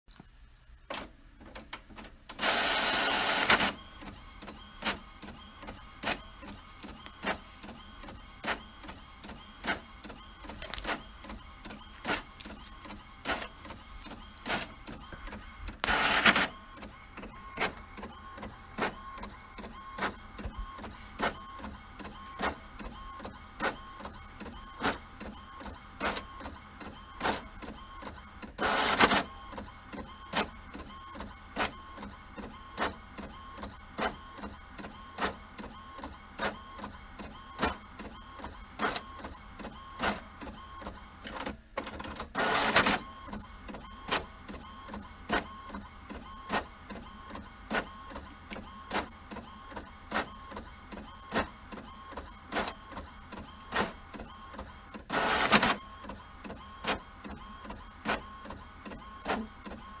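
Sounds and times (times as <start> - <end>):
printer humming: 0.8 - 60.0
printer mechanical rush: 1.4 - 60.0.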